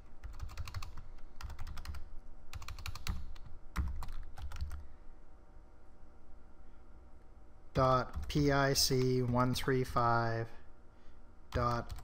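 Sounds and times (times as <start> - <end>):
typing on keyboard: 0.2 - 4.8, 11.5 - 12.0.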